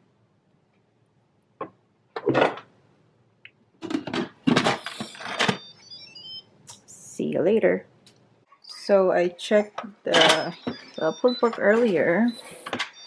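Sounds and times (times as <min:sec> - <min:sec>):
knocks and clatter: 0:03.8 - 0:05.6.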